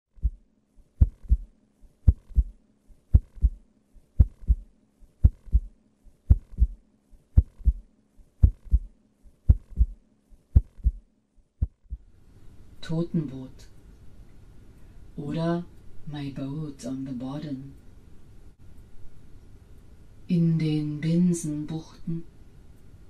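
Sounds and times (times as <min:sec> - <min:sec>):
heartbeat thumps: 0:00.1 - 0:00.4, 0:01.0 - 0:03.6, 0:04.2 - 0:12.1.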